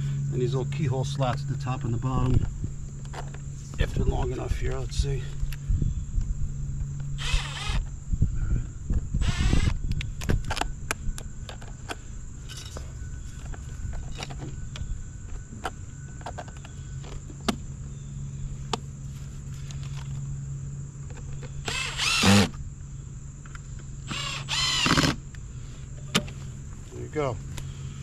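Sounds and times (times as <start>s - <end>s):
cordless drill driving screws: 7.2s - 7.9s, 9.2s - 9.8s, 21.6s - 22.5s, 24.1s - 25.2s.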